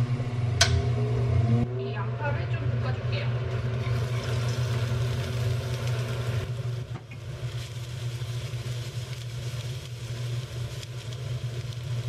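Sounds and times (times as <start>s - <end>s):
range hood fan humming: 0.0s - 12.0s
onions sizzling in frying pan: 3.2s - 12.0s.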